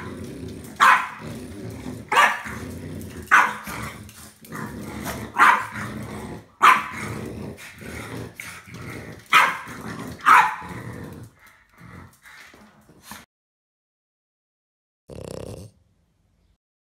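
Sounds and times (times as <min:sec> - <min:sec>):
dogs growling: 0:00.0 - 0:13.2, 0:15.1 - 0:15.8
small dogs barking: 0:00.7 - 0:01.4, 0:02.0 - 0:02.6, 0:03.3 - 0:03.8, 0:05.3 - 0:05.9, 0:06.6 - 0:07.0, 0:09.2 - 0:10.7.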